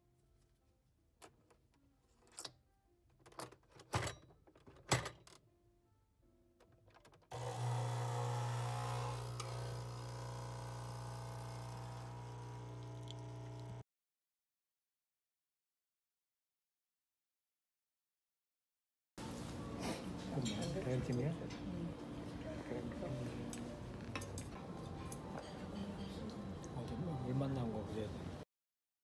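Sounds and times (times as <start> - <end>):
coffee machine pump humming: 7.3 - 13.8.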